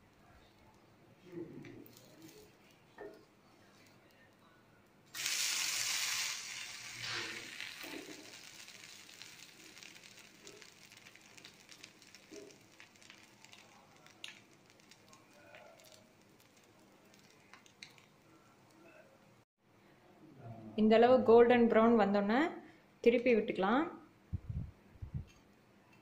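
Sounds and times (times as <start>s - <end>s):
small crackles and clicks: 1.6s - 4.5s, 6.8s - 19.0s
bread sizzling on a hot pan: 5.1s - 19.0s.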